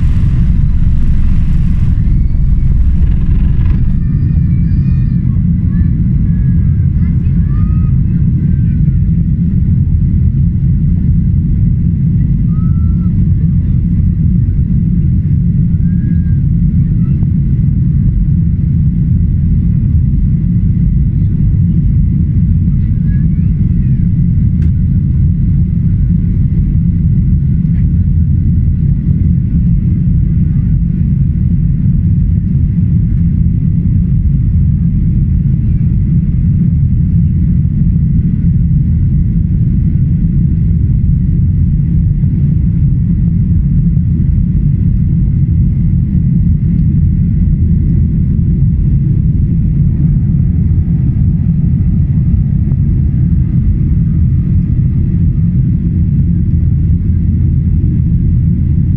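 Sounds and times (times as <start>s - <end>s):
faint high tone: 0.0s - 4.7s
rushing air: 0.0s - 4.7s
jet engines rumbling: 0.0s - 8.5s, 47.0s - 58.4s.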